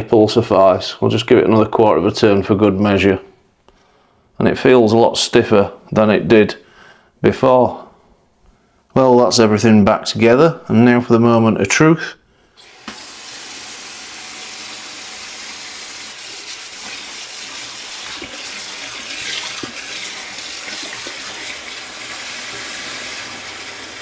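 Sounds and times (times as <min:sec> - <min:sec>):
water running into metal sink: 0:12.6 - 0:24.0.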